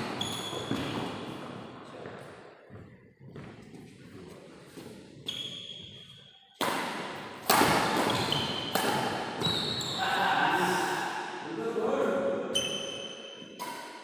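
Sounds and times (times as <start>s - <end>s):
shoes squeaking on court floor: 0.0s - 6.6s, 7.8s - 10.1s, 12.5s - 13.8s
rackets hitting shuttlecock: 6.6s - 9.7s, 12.9s - 14.0s.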